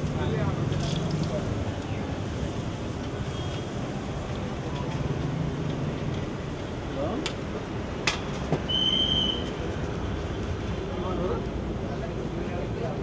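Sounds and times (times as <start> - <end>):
street cooking stall background noise: 0.0 - 13.0
high whistle-like tone: 8.7 - 9.5.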